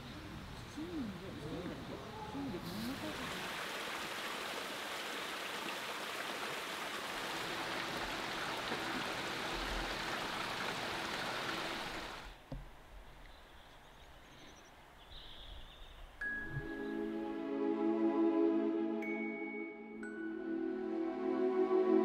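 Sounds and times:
rushing flowing water: 0:02.9 - 0:12.4.

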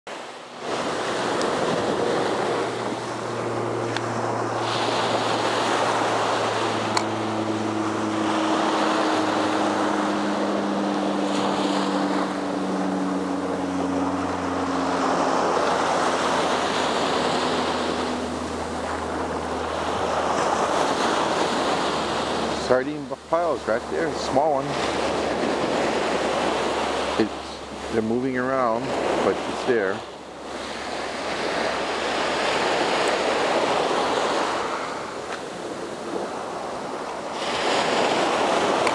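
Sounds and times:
small waves breaking on beach: 0:00.1 - 0:38.9
wind buffeting microphone: 0:00.4 - 0:27.9.

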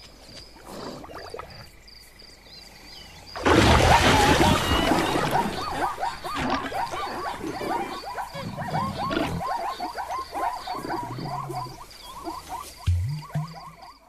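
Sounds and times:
faint insect chirping: 0:00.0 - 0:03.6, 0:04.6 - 0:14.0
zebras yelping barks: 0:03.6 - 0:13.9.

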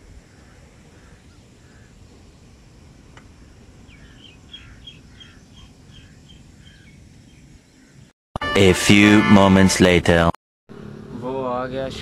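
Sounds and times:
bird chirping: 0:03.4 - 0:08.1.

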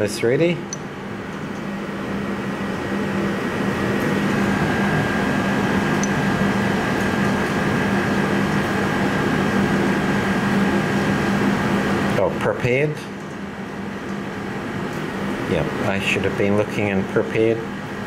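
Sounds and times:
mechanical hum and rushing: 0:00.0 - 0:12.6.

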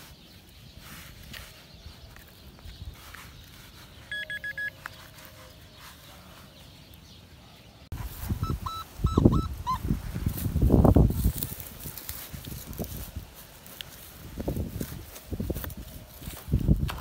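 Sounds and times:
metal detector beeps: 0:04.1 - 0:04.9, 0:08.4 - 0:09.8.

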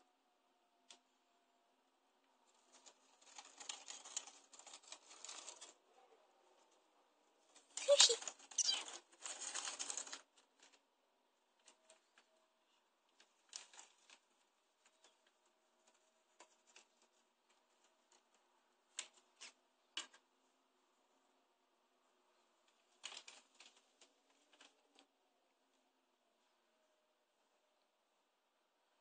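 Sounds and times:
rat rustling and scratching: 0:02.3 - 0:20.6, 0:22.3 - 0:25.1.

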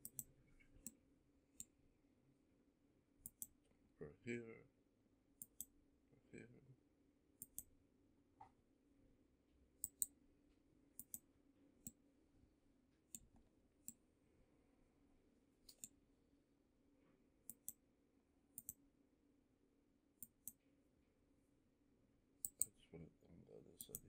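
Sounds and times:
computer mouse clicking: 0:00.0 - 0:01.0, 0:03.2 - 0:03.6, 0:05.4 - 0:05.7, 0:07.4 - 0:07.7, 0:09.8 - 0:10.2, 0:11.0 - 0:11.2, 0:15.6 - 0:16.0, 0:17.5 - 0:17.8, 0:18.6 - 0:18.8, 0:20.2 - 0:20.6, 0:22.4 - 0:22.7, 0:23.8 - 0:24.0
faint low hum: 0:00.0 - 0:24.0.

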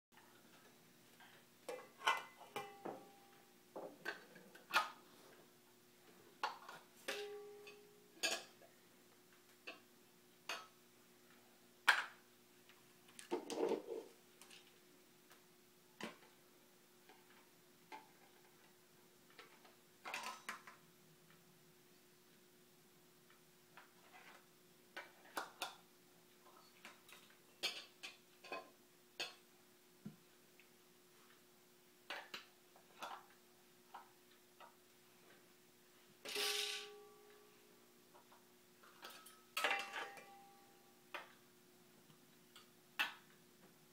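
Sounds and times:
faint steady hum: 0:00.2 - 0:43.9
clinks of small kitchen containers: 0:38.8 - 0:40.6.

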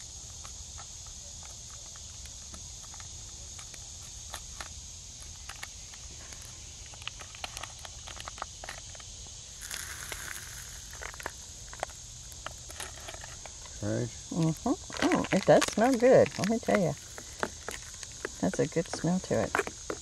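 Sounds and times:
insects droning: 0:00.0 - 0:20.0
cups and packet clicking: 0:09.6 - 0:12.6.

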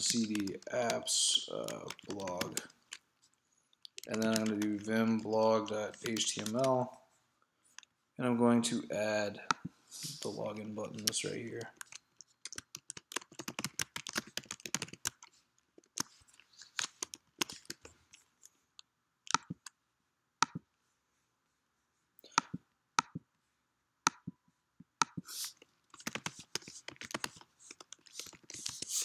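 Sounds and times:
typing on keyboard: 0:00.0 - 0:03.0, 0:03.9 - 0:06.8, 0:10.9 - 0:16.1, 0:16.8 - 0:17.9, 0:25.9 - 0:29.0.

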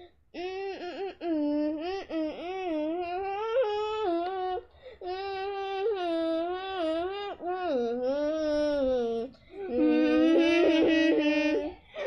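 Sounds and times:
girl singing in high voice: 0:05.4 - 0:11.8.

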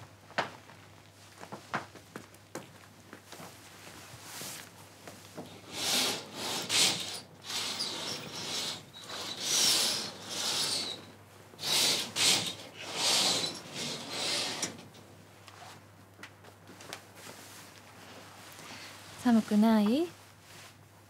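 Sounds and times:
bed sheets rustling: 0:03.2 - 0:05.3.

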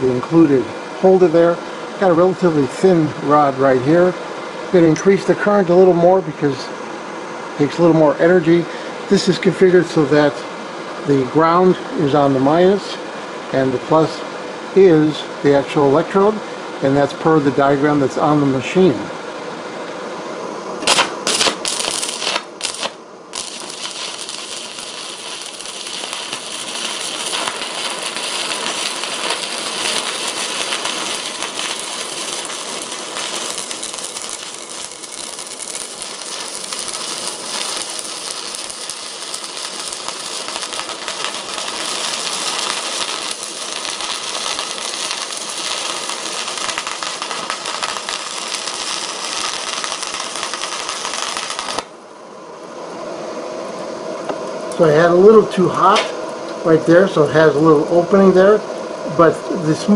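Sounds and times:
welding arc crackling: 0:20.8 - 0:52.0.

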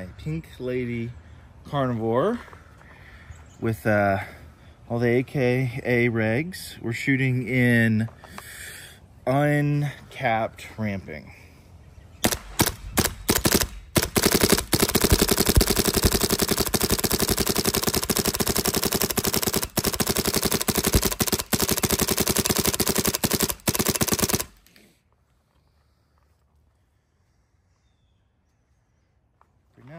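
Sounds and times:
paintball gun firing rapidly: 0:12.2 - 0:24.7.

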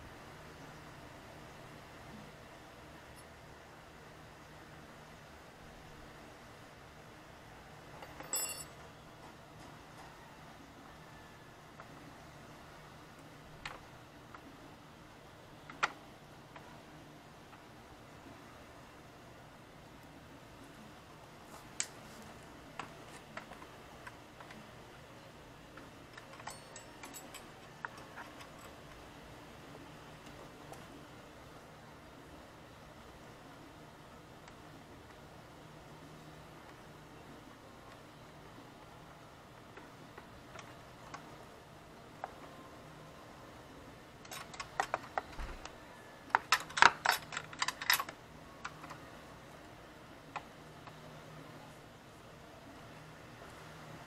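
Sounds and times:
light metal clicks and clinks: 0:08.0 - 0:09.4, 0:25.8 - 0:29.0, 0:44.2 - 0:45.3, 0:46.3 - 0:49.0.

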